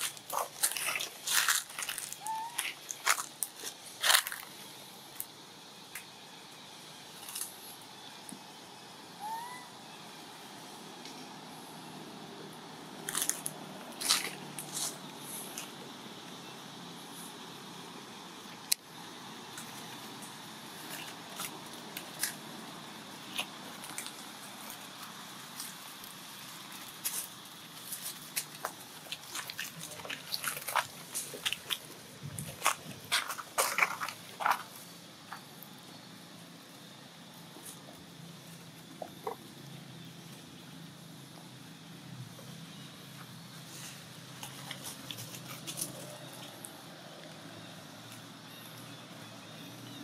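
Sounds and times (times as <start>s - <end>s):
leaf litter crackling: 0.0s - 4.6s
background hiss: 0.0s - 50.0s.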